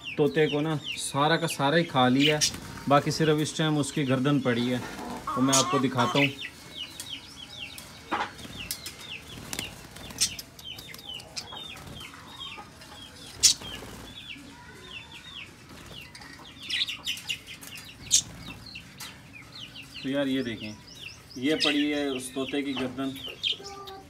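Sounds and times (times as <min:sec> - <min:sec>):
budgerigars chirping: 0:00.0 - 0:03.4, 0:04.0 - 0:07.7, 0:08.7 - 0:14.3, 0:15.3 - 0:23.9
wings fluttering: 0:02.3 - 0:03.2, 0:08.3 - 0:12.3, 0:13.2 - 0:14.3.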